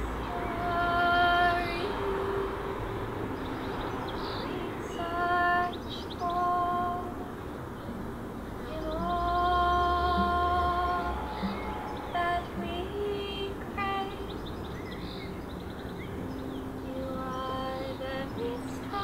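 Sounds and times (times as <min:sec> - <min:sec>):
woman singing long notes: 0:00.0 - 0:02.9, 0:04.3 - 0:07.4, 0:08.6 - 0:14.5, 0:16.8 - 0:19.0
quiet acoustic guitar: 0:00.0 - 0:19.0.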